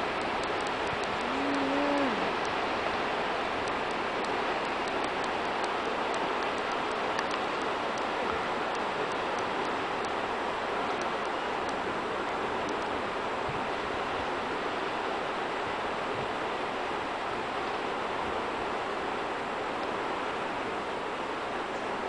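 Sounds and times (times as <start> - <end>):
waves breaking on shore: 0.0 - 22.0
faint sharp clicks: 0.2 - 1.4, 3.6 - 10.2, 10.9 - 11.8
person humming: 1.2 - 2.4.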